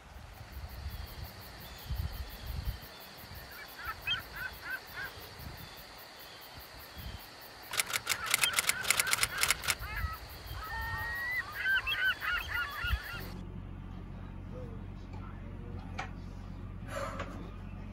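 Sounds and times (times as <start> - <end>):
faint bird calls: 0.6 - 13.4
geese honking: 3.5 - 5.3, 8.1 - 13.4
low irregular rumble: 12.4 - 17.9.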